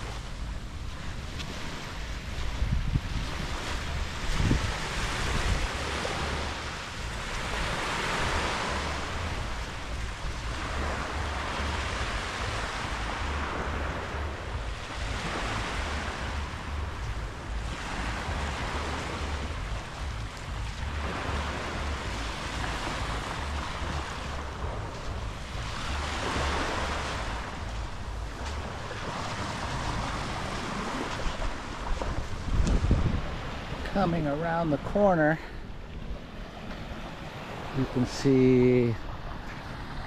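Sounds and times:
small sea waves breaking: 0:00.0 - 0:40.0
wind rumble on microphone: 0:00.0 - 0:40.0.

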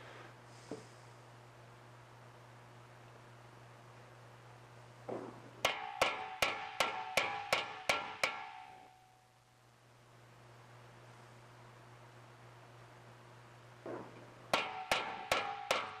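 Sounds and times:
hammer striking sheet metal: 0:05.6 - 0:09.0, 0:14.0 - 0:16.0.

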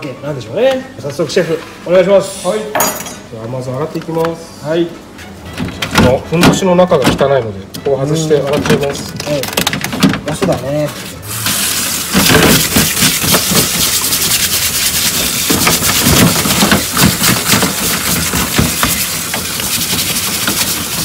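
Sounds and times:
crab shell scrubbed by hand: 0:11.5 - 0:21.0.

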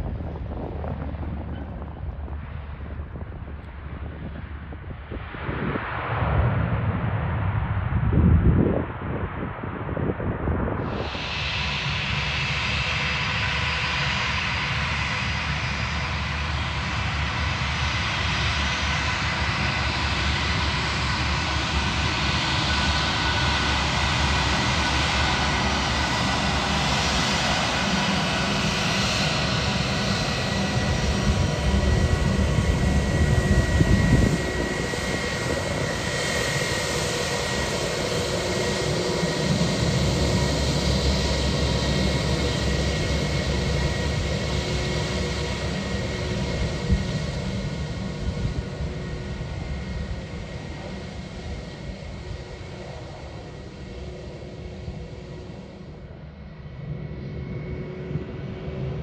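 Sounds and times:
low engine rumble: 0:00.0 - 0:05.3
jet engines whining: 0:10.8 - 0:56.0.

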